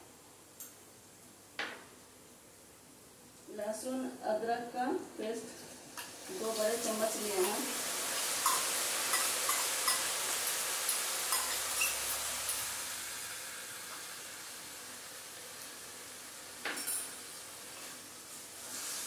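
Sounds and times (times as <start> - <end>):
food sizzling in hot oil: 5.5 - 19.0.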